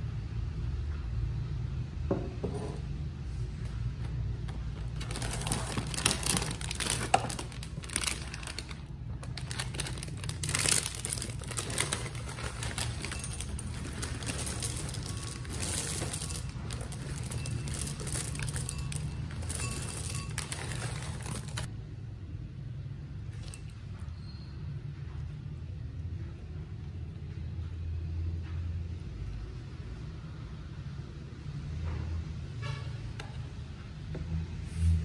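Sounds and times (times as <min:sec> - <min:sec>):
foil bag crinkling: 0:04.8 - 0:21.7
cereal pouring into bowl: 0:05.2 - 0:21.7.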